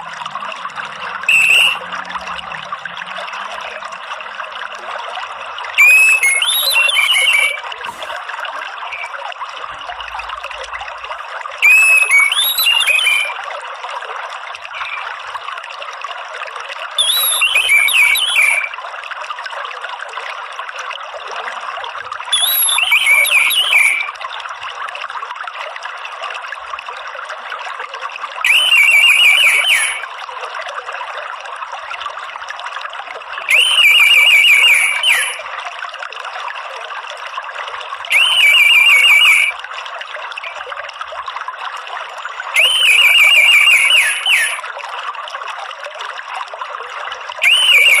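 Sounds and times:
running water trickling: 0.0s - 48.0s
thrush trilling call: 1.3s - 1.8s, 5.8s - 8.1s, 11.6s - 13.4s, 14.7s - 15.1s, 17.0s - 18.7s, 22.4s - 24.1s, 28.5s - 30.1s, 33.5s - 35.5s, 38.1s - 39.6s, 42.6s - 44.6s, 47.4s - 48.0s.

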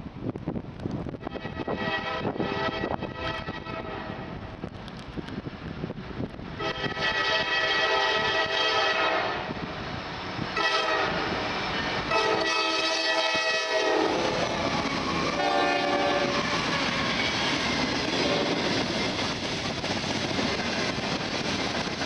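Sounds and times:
train wheels rumbling on rails: 0.0s - 22.0s
locomotive engine rumbling: 0.1s - 22.0s
train air horn blasts: 1.2s - 4.4s, 6.6s - 9.6s, 10.5s - 11.5s, 12.1s - 17.1s, 18.2s - 18.6s.

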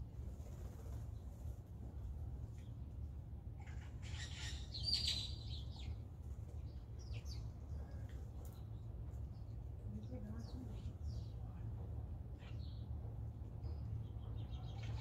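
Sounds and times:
blue jay harsh call: 3.7s - 5.3s
steady low rumble: 5.4s - 15.0s.

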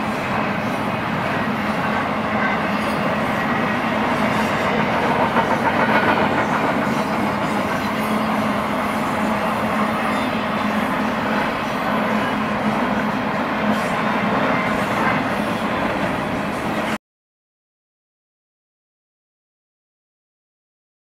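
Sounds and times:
freight train wheels rumbling on rails: 0.0s - 17.0s.

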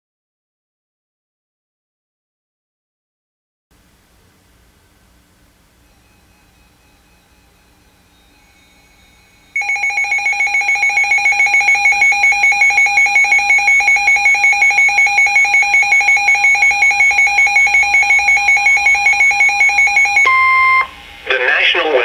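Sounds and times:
two-pitch alert beeping: 6.8s - 21.0s.

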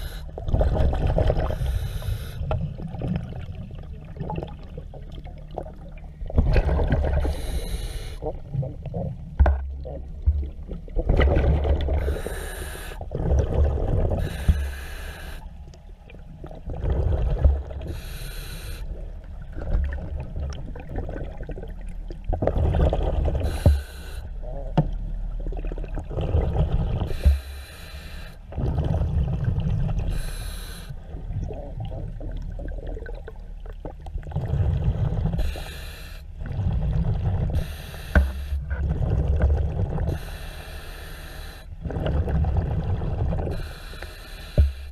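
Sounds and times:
regulator inhale hiss: 0.0s - 0.3s, 1.5s - 2.5s, 7.2s - 8.2s, 12.0s - 13.0s, 14.2s - 15.6s, 17.8s - 19.0s, 23.4s - 24.4s, 27.1s - 28.5s, 30.1s - 31.0s, 35.4s - 36.3s, 37.6s - 38.7s, 40.1s - 41.8s, 43.5s - 44.9s
exhaled air bubbling: 0.0s - 44.9s.

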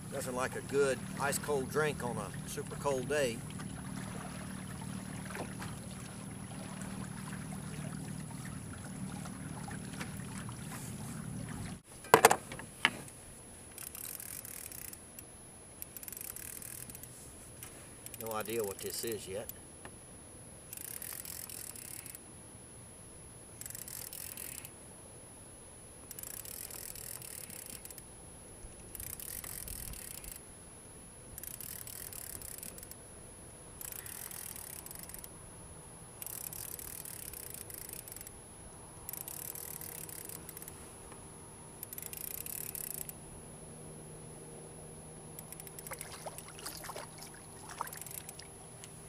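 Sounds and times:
fishing reel gear cranking: 13.8s - 15.0s, 15.8s - 17.1s, 20.7s - 22.2s, 23.6s - 24.7s, 26.1s - 28.1s, 28.9s - 30.4s, 31.4s - 33.0s, 33.8s - 35.3s, 36.2s - 38.3s, 39.1s - 40.8s, 41.8s - 43.2s, 45.4s - 46.5s, 47.8s - 48.4s.

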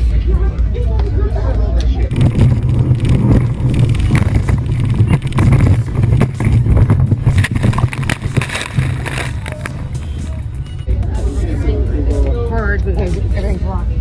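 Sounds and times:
water crashing over boat: 2.1s - 9.8s
wind and engine rush: 2.1s - 10.6s.

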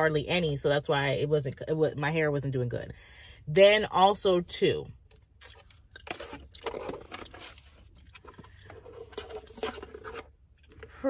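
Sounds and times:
plastic bottles being handled: 5.4s - 11.0s.

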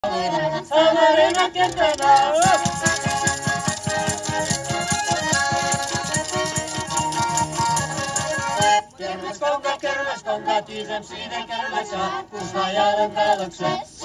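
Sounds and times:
women singing: 0.0s - 6.1s, 8.0s - 14.0s
button accordions: 0.0s - 14.0s
rattle: 1.2s - 8.8s
frame drum: 2.2s - 8.8s.

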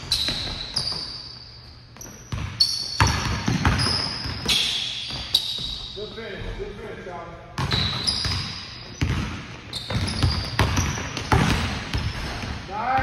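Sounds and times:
sneaker squeaks: 0.0s - 12.6s
basketball bouncing on wooden floor: 2.0s - 6.6s, 7.6s - 13.0s.

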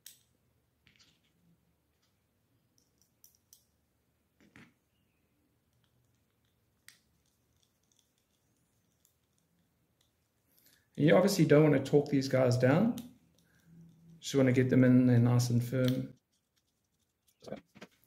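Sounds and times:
screwdriver turning tiny screws: 5.7s - 10.2s.

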